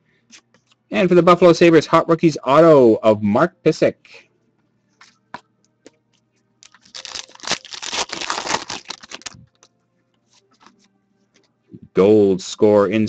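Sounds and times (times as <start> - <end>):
foil wrapper tearing and crinkling: 6.6 - 9.6.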